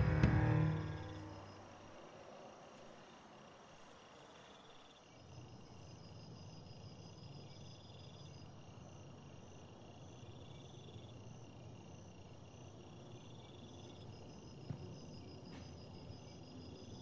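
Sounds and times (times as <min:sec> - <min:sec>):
low steady hum: 0:00.0 - 0:02.4
crickets chirping: 0:00.0 - 0:17.0.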